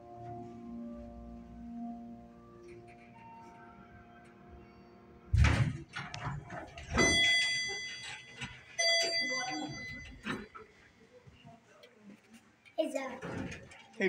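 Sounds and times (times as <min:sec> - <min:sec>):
thump: 0:05.3 - 0:05.8
elevator arrival beep: 0:06.1 - 0:10.7.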